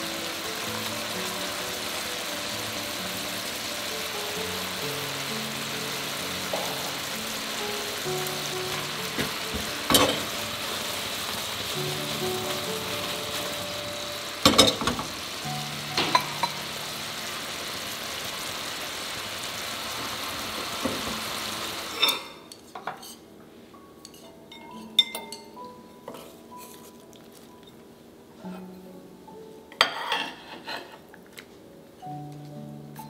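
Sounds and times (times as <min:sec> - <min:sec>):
food sizzling in a pan: 0:00.0 - 0:22.5
soft background music: 0:00.0 - 0:33.0.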